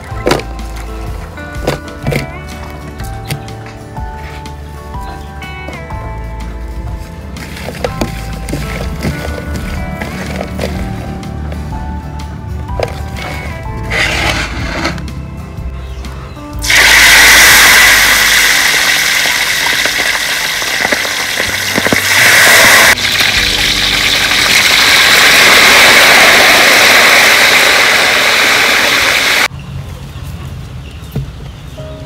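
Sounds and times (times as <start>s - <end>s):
fish sizzling in hot oil: 16.6s - 29.5s.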